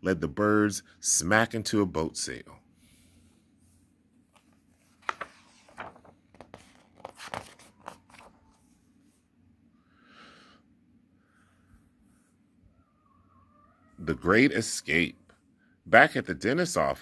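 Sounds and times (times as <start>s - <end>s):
book pages turning: 4.2s - 8.8s.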